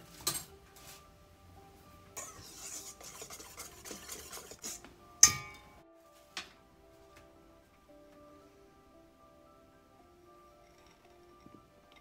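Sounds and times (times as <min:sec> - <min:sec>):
flour scraped in a steel bowl: 0:02.2 - 0:04.9
metallic knock on bowl ringing: 0:05.2 - 0:05.8.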